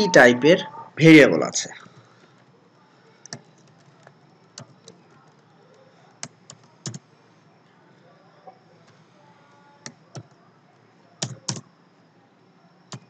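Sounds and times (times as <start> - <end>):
faint keyboard keystrokes: 3.2 - 7.0.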